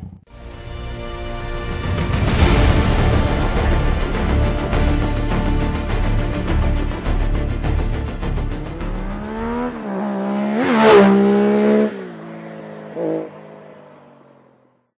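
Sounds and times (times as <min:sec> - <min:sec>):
engine revving sound effect: 0:08.1 - 0:13.4.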